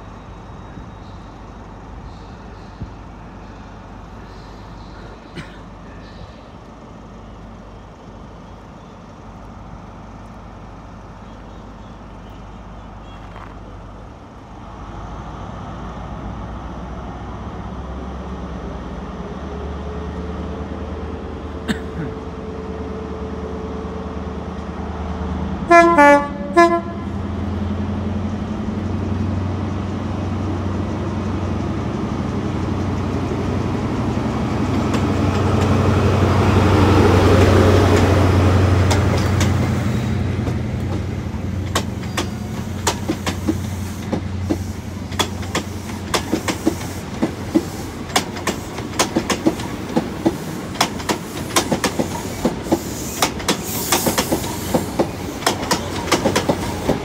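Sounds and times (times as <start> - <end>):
diesel train engines: 0.0 - 57.0
train horn blasts: 25.6 - 27.3.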